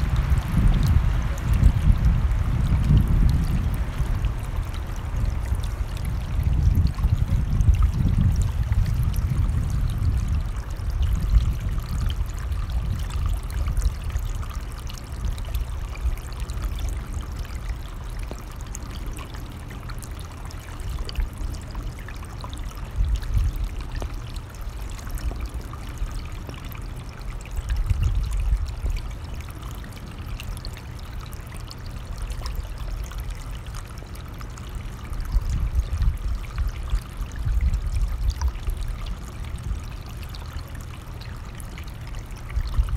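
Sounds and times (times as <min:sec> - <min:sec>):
stream rushing water: 0:00.0 - 0:11.0
wind rumbling on microphone: 0:00.0 - 0:42.9.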